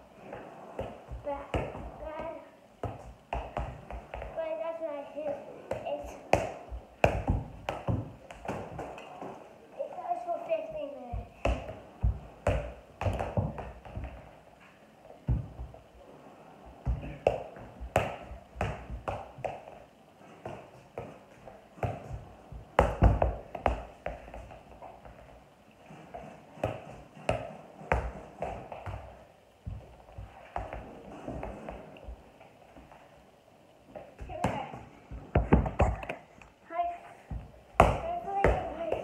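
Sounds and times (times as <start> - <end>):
soccer ball kicked thumps: 0.8 - 4.4, 5.7 - 9.0, 11.1 - 14.4, 15.2 - 15.8, 16.8 - 19.8, 20.4 - 25.3, 25.9 - 32.2, 34.0 - 36.1, 37.3 - 39.0.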